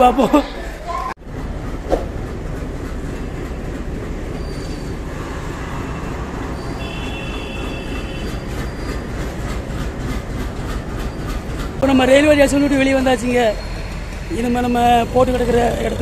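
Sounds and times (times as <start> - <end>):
train rumbling on tracks: 0.7 - 16.0
high squeal of wheels: 4.2 - 9.6, 11.0 - 11.6, 13.1 - 15.8.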